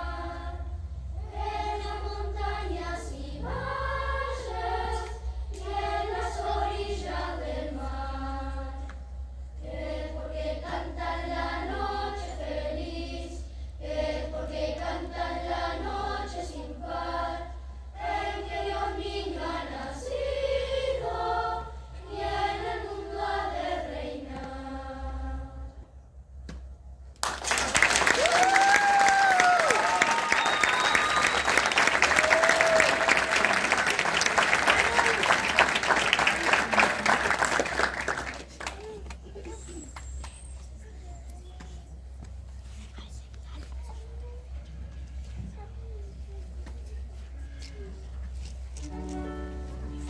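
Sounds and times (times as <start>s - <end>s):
children's choir singing: 0.0s - 9.0s, 9.6s - 25.9s.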